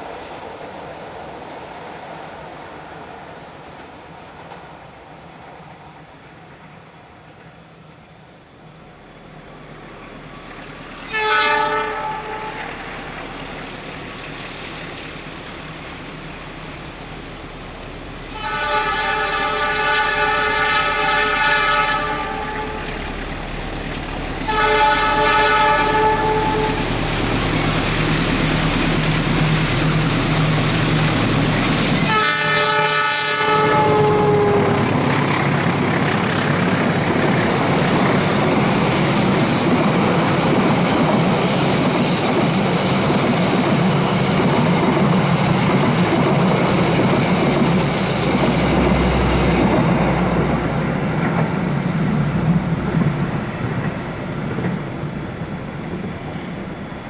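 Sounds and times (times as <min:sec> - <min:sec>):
train engine and wheels rumbling: 0:00.0 - 0:57.0
locomotive horn blasts: 0:11.0 - 0:12.8, 0:18.2 - 0:23.0, 0:24.4 - 0:26.9, 0:32.0 - 0:34.9.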